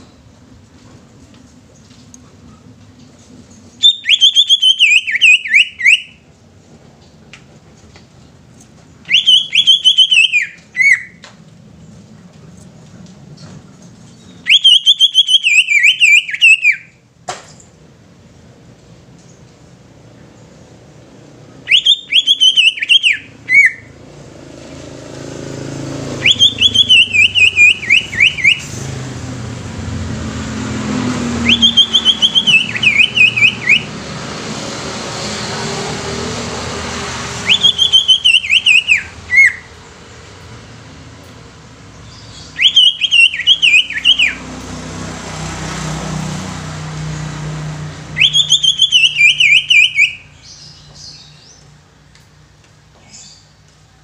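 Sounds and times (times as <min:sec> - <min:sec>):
bird whistling song: 0:03.5 - 0:06.2, 0:09.0 - 0:11.2, 0:14.1 - 0:17.0, 0:21.6 - 0:23.9, 0:26.1 - 0:28.9, 0:31.4 - 0:34.0, 0:37.4 - 0:39.7, 0:41.9 - 0:44.4, 0:48.1 - 0:51.7, 0:53.0 - 0:53.6.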